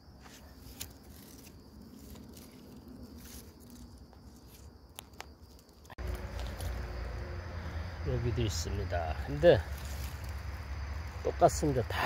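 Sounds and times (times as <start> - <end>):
low background rumble: 5.9 - 12.0.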